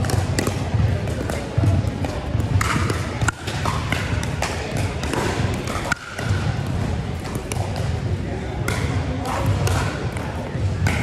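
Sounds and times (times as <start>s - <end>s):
paddles striking plastic ball: 0.0s - 7.9s
indoor hall background noise: 0.0s - 11.0s.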